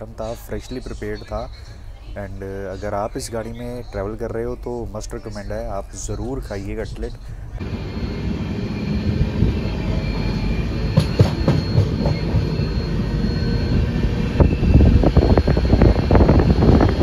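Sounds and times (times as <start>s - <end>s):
train wheels rumbling on rails: 8.7s - 17.0s
train clicks and clatter: 10.9s - 12.8s.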